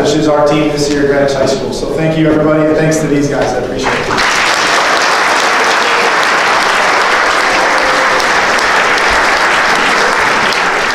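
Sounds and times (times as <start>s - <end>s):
audience applauding: 3.8s - 10.9s.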